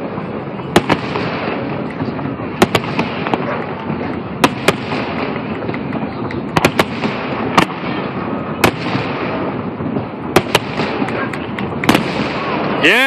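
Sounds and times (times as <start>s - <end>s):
steady din of fireworks show: 0.0s - 13.0s.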